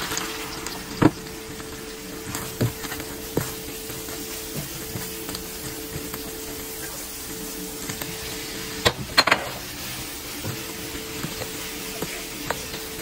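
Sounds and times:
onions sizzling in frying pan: 0:00.0 - 0:13.0
spatula stirring: 0:00.0 - 0:13.0
steady hum: 0:00.0 - 0:13.0
peppers clattering into pan: 0:07.9 - 0:09.8.

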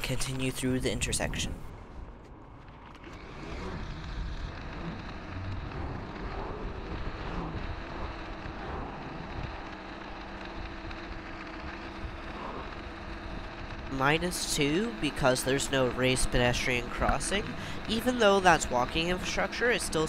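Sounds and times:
wind rushing over microphone: 0:01.0 - 0:14.3.

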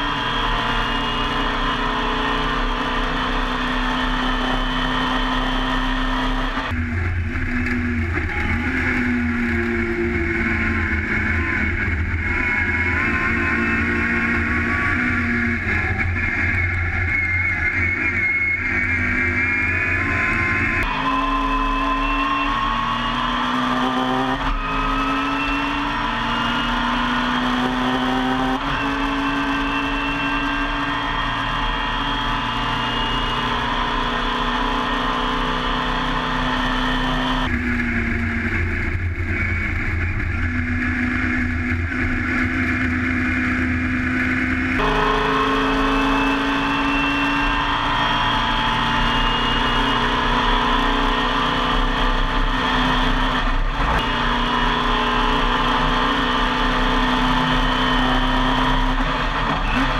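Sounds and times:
race car engine revving: 0:00.0 - 0:59.9.

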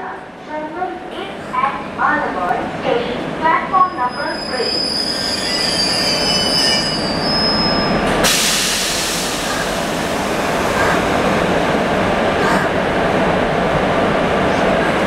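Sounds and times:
train rumble: 0:00.0 - 0:15.0
train wheels squealing on rails: 0:03.8 - 0:09.7.

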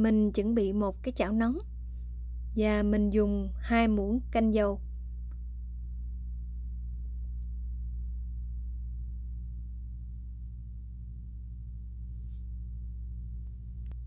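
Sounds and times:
induction cooktop electric hum: 0:00.0 - 0:14.0.

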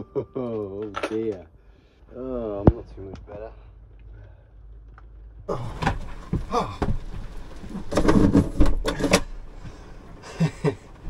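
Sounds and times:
knocks and clatters of handled objects: 0:04.9 - 0:09.3.

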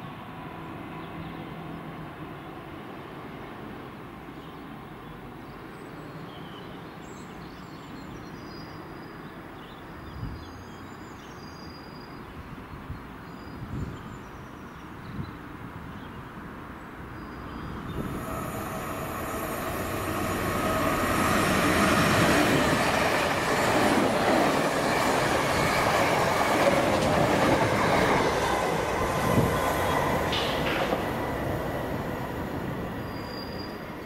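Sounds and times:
birds chirping: 0:17.2 - 0:34.0
train wheels rumbling on track: 0:17.8 - 0:34.0.

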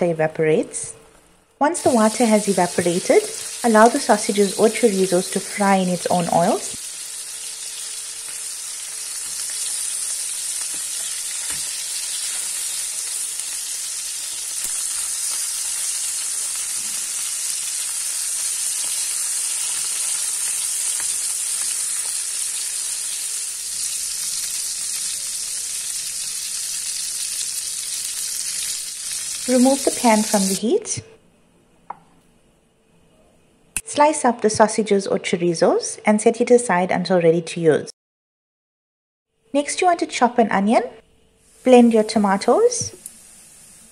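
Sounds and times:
sausages sizzling in a pan: 0:01.7 - 0:30.6, 0:41.4 - 0:43.9.

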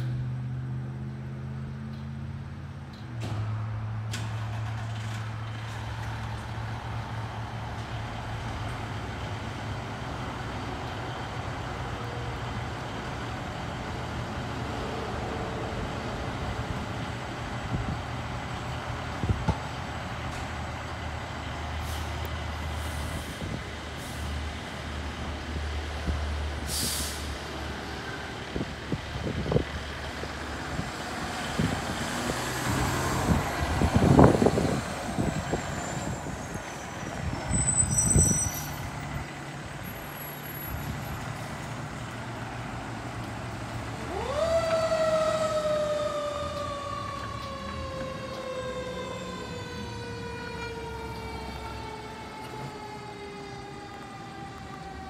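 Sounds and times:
fire engine diesel running: 0:03.3 - 0:55.0
air-brake hisses: 0:26.7 - 0:27.4
siren wailing: 0:44.0 - 0:55.0.

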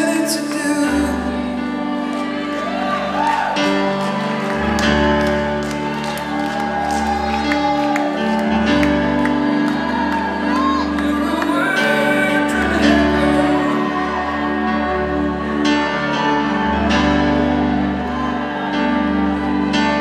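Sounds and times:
man singing into a microphone: 0:00.0 - 0:02.1, 0:10.8 - 0:16.6.

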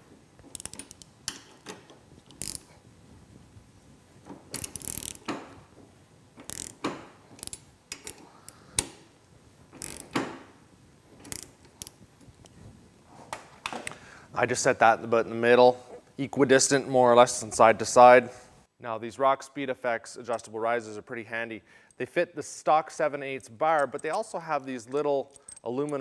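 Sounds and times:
ratchet wrench clicking: 0:00.5 - 0:01.4, 0:02.3 - 0:02.7, 0:04.5 - 0:05.3, 0:06.4 - 0:08.9, 0:09.8 - 0:10.1, 0:11.2 - 0:12.0.

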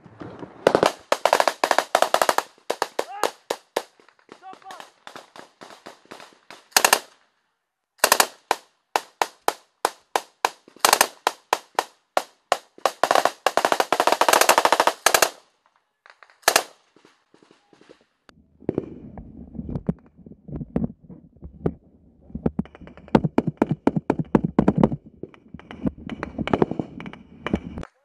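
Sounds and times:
single rifle shots: 0:00.6 - 0:07.2, 0:08.0 - 0:15.5
automatic gunfire burst: 0:04.8 - 0:07.1, 0:08.0 - 0:11.9, 0:12.5 - 0:15.4, 0:16.4 - 0:16.7.

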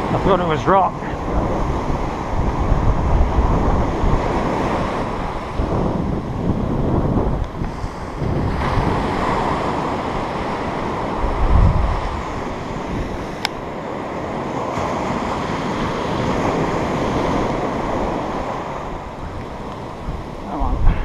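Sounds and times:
surf breaking on beach: 0:00.0 - 0:21.0
wind buffeting microphone: 0:00.0 - 0:21.0.

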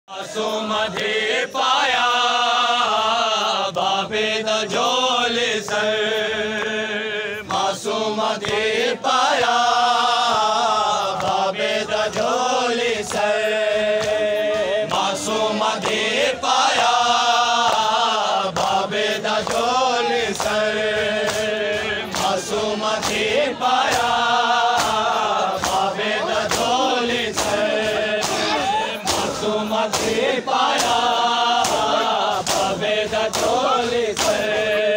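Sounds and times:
men chanting a lament: 0:00.1 - 0:34.9
hands slapping chests: 0:07.5 - 0:34.6.

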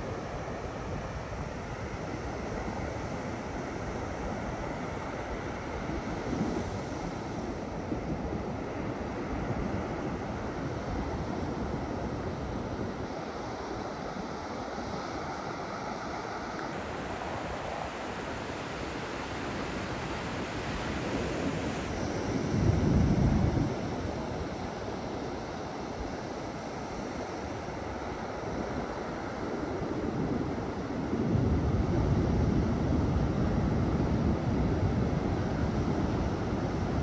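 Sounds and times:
wind on microphone: 0:00.0 - 0:37.0
ocean surf: 0:13.0 - 0:22.8.

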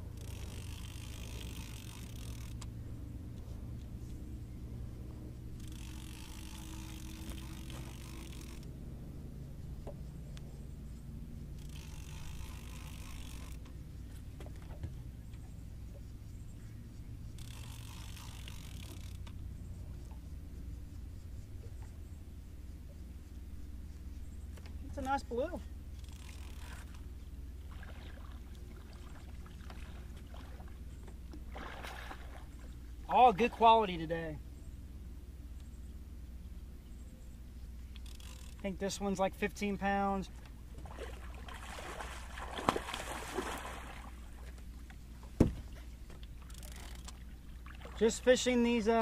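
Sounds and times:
fishing reel whirring: 0:00.0 - 0:03.4, 0:05.2 - 0:08.8, 0:10.6 - 0:14.1, 0:17.2 - 0:21.1, 0:25.8 - 0:30.5, 0:37.8 - 0:40.2, 0:46.2 - 0:47.5
steady low rumble: 0:00.0 - 0:12.4, 0:19.2 - 0:26.1
steady low hum: 0:00.0 - 0:49.0
water lapping around boat: 0:00.0 - 0:49.0
faint irregular ticks: 0:00.1 - 0:04.2, 0:09.8 - 0:14.3, 0:15.3 - 0:27.4, 0:37.0 - 0:40.6, 0:46.1 - 0:47.3.

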